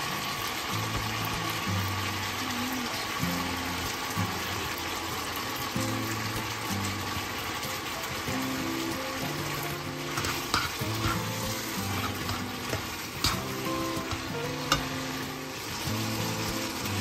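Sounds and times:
pasta sizzling in oil: 0.0s - 17.0s
tongs clicking against pan: 10.1s - 15.0s.

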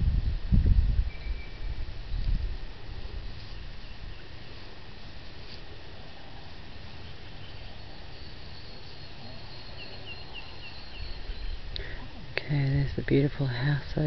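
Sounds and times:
low steady rumble: 0.0s - 14.0s
bird chirping: 1.1s - 2.4s, 6.9s - 12.0s
high insect tone: 6.0s - 12.0s.

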